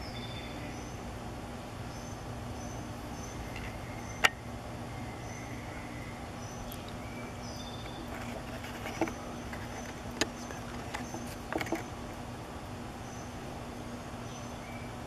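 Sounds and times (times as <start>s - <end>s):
faint high bird chirps: 0.0s - 1.0s, 1.9s - 8.2s, 14.2s - 15.0s
steady low hum: 0.0s - 15.0s.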